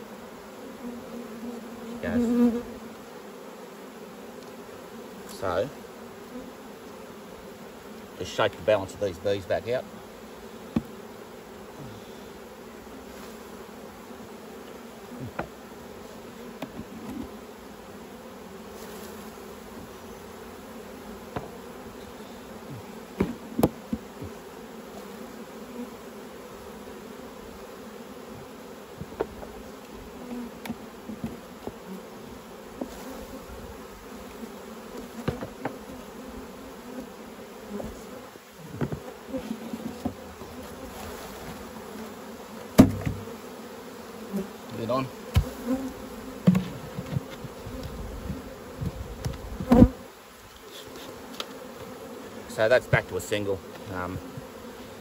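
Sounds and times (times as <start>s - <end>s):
honeybees buzzing: 0.0s - 55.0s
wooden hive frames knocking: 10.7s - 11.0s, 15.3s - 15.6s, 16.5s - 17.4s, 21.3s - 21.6s, 23.1s - 24.4s, 28.9s - 29.6s, 34.9s - 35.9s, 38.7s - 40.7s, 42.6s - 43.4s, 45.3s - 50.0s.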